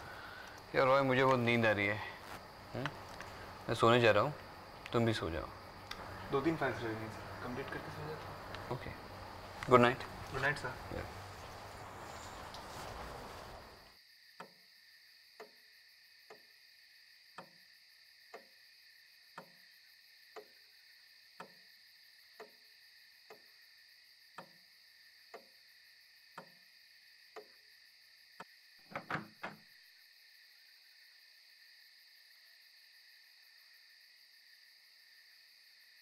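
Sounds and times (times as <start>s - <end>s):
clock ticking: 21.4s - 21.6s.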